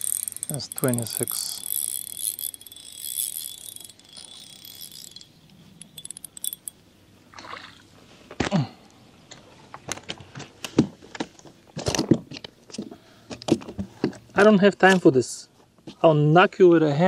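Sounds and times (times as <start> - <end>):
fishing reel winding: 0.0 - 6.8.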